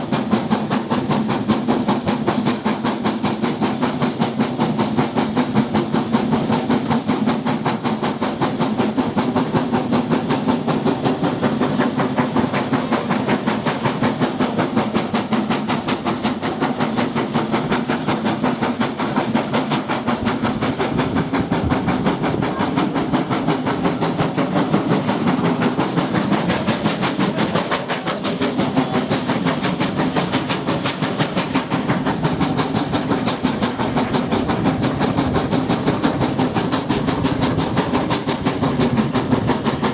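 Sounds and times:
steam locomotive chuffing: 0:00.0 - 0:39.9
wheels on rails: 0:00.0 - 0:39.9
wind rush: 0:20.1 - 0:23.3.

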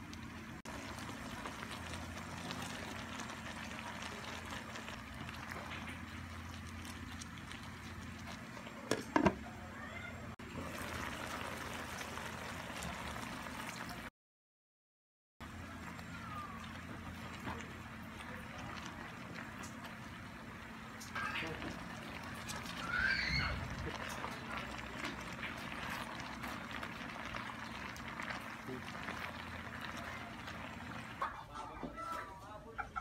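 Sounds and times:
vegetables sizzling in wok: 0:00.6 - 0:09.1, 0:10.4 - 0:14.1, 0:19.2 - 0:31.4.

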